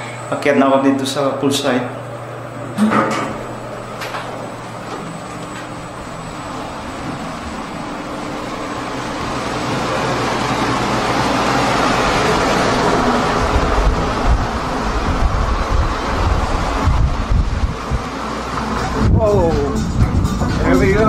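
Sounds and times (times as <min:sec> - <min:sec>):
rushing air noise: 0:05.8 - 0:21.0
wind buffeting microphone: 0:12.8 - 0:21.0.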